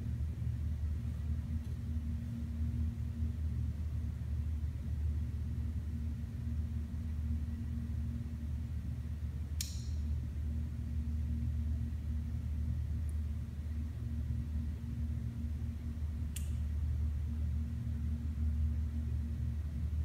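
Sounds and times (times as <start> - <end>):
low mechanical hum: 0.0 - 20.0
sharp click: 9.6 - 10.0, 16.3 - 16.6.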